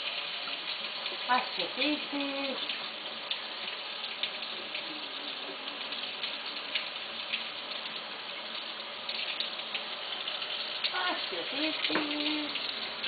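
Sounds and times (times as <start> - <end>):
water splashing and dripping: 0.0 - 13.0
tap running into a sink: 11.6 - 13.0.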